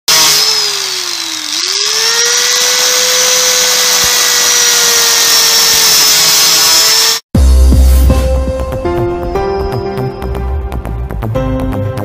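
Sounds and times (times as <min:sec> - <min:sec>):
angle grinder whining: 0:00.1 - 0:07.3.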